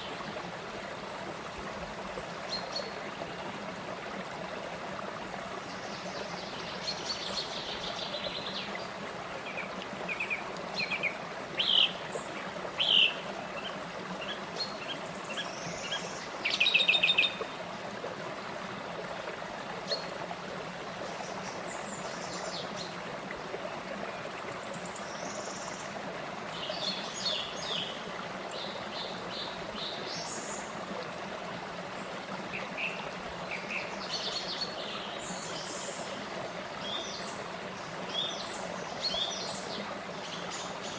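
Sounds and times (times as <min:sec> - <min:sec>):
stream rushing over rocks: 0:00.0 - 0:40.9
songbirds chirping: 0:05.4 - 0:17.6, 0:32.0 - 0:40.9.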